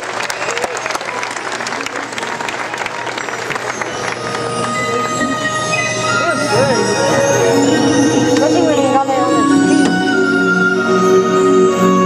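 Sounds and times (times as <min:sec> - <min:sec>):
audience applauding: 0:00.0 - 0:08.5.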